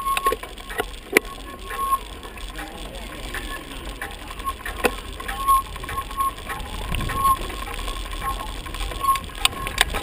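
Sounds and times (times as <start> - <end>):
bicycle rattling and clicking: 0.0 - 10.0
wind rumble on microphone: 6.2 - 8.2.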